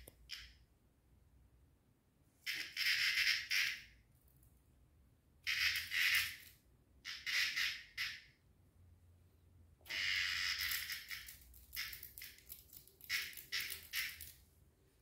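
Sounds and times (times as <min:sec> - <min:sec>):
cat claws scratching tile floor: 0:10.6 - 0:14.4.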